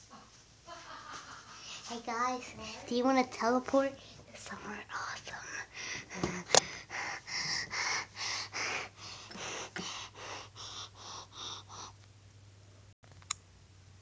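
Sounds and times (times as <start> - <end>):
child puffing air: 5.7 - 12.0.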